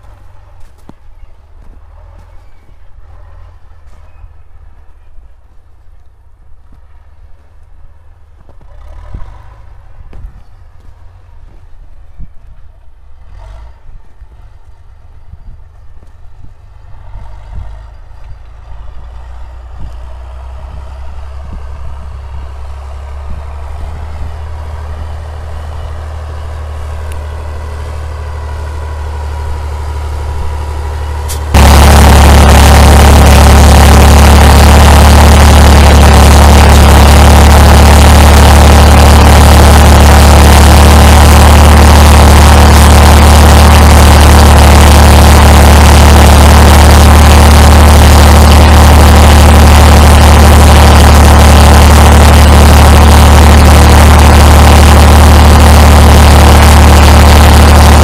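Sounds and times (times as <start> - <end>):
tractor diesel engine: 0.0 - 58.0.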